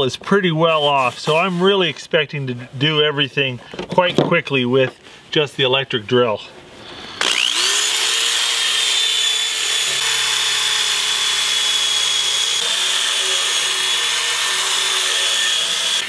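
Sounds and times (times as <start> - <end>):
electric drill motor whine: 7.0 - 16.0.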